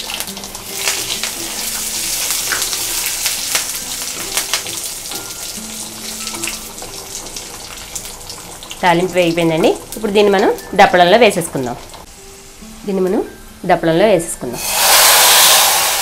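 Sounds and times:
chillies sizzling in hot oil: 0:00.0 - 0:16.0.

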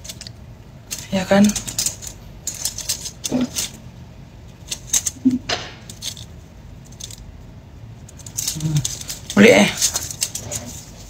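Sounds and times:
bangles clinking: 0:00.0 - 0:03.8, 0:08.0 - 0:11.0.

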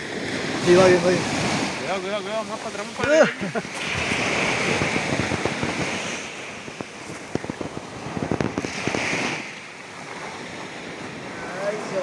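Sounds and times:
surf washing up a beach: 0:00.0 - 0:12.0
sharp crackles and pops: 0:03.7 - 0:09.8.

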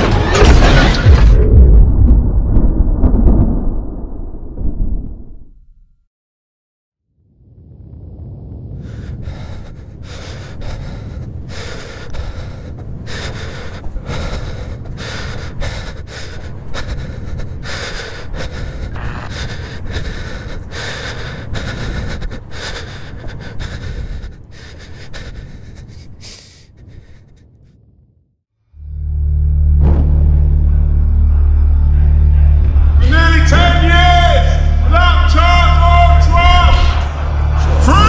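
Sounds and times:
steady low rumble: 0:00.4 - 0:05.5, 0:07.2 - 0:38.0
heavy ragged breathing and gasps: 0:08.8 - 0:27.6.

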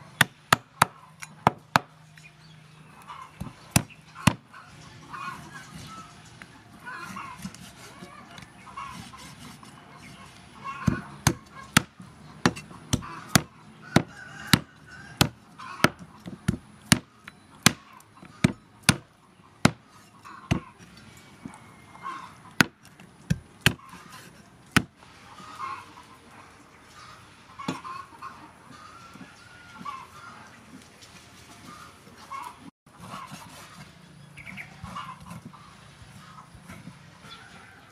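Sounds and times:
distant fowl calling: 0:00.0 - 0:22.8, 0:23.6 - 0:30.6, 0:31.5 - 0:37.9
cleaver chopping on wooden board: 0:03.4 - 0:04.4, 0:10.8 - 0:17.8, 0:18.4 - 0:19.8.

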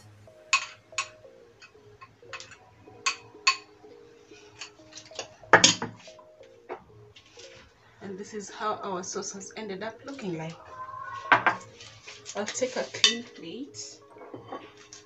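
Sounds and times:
spoon clinking against glass bowl: 0:02.3 - 0:03.7.

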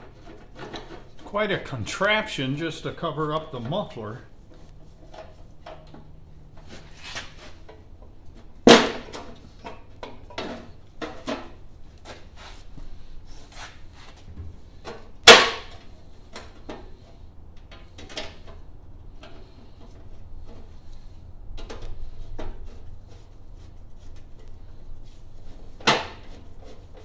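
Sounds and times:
sharp metal knocks: 0:15.2 - 0:15.8.

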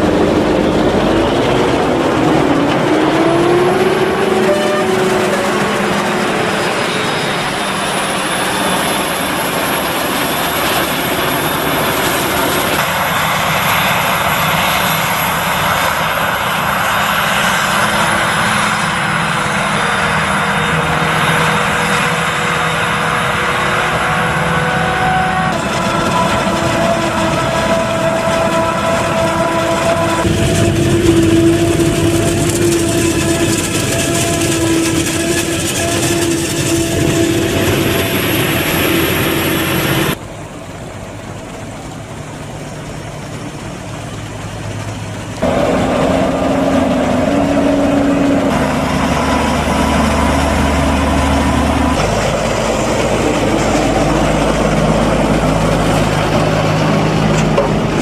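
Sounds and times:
forage harvester engine and chopping: 0:00.0 - 0:58.0
tractor engine: 0:00.0 - 0:58.0
tractor driving past: 0:41.4 - 0:58.0.

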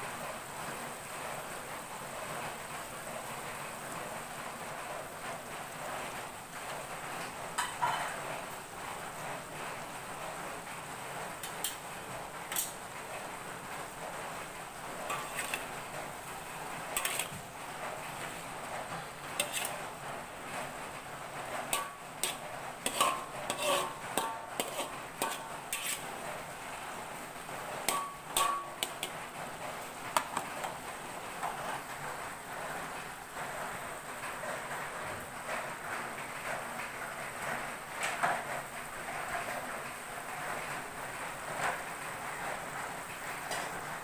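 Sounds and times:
metal spatula scraping a wok: 0:11.4 - 0:11.8, 0:12.5 - 0:12.8, 0:15.0 - 0:16.2, 0:16.8 - 0:18.5, 0:19.1 - 0:20.0, 0:21.5 - 0:26.6, 0:27.8 - 0:29.2.

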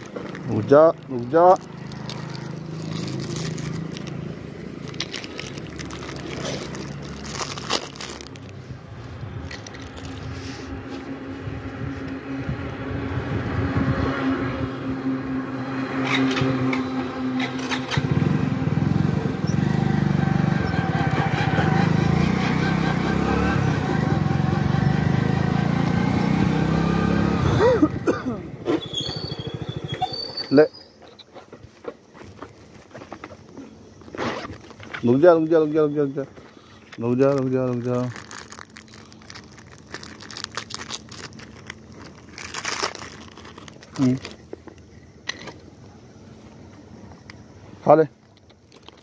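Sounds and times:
motorcycle engine: 0:00.0 - 0:08.5, 0:09.2 - 0:30.6
plastic wrapper crinkling and tearing: 0:00.0 - 0:10.6, 0:33.9 - 0:35.3, 0:36.8 - 0:45.5, 0:48.2 - 0:49.0.

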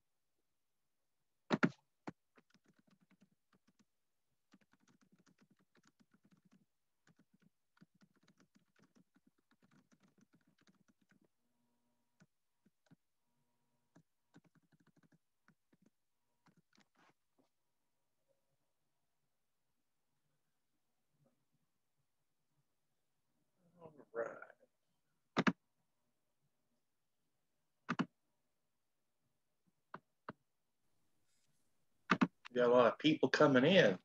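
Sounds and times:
faint keyboard typing: 0:01.5 - 0:11.4, 0:12.1 - 0:13.1, 0:13.9 - 0:17.2, 0:27.9 - 0:28.1.

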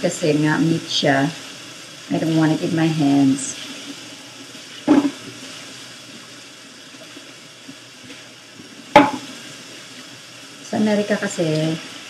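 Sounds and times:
sharp knock: 0:04.9 - 0:05.2, 0:09.0 - 0:09.3
tap water running into sink: 0:09.0 - 0:09.3.

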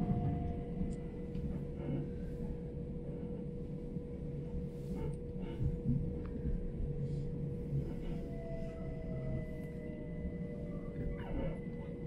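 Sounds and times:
train wheels rumbling on track: 0:00.0 - 0:09.6
constant train hum: 0:00.0 - 0:12.0.

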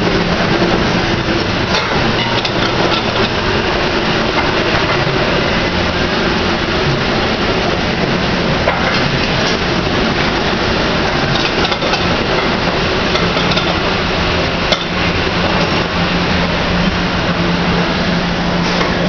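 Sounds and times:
loud background noise: 0:00.0 - 0:19.0
dishes and utensils clinking: 0:01.7 - 0:03.4, 0:11.2 - 0:13.9, 0:14.7 - 0:15.8.

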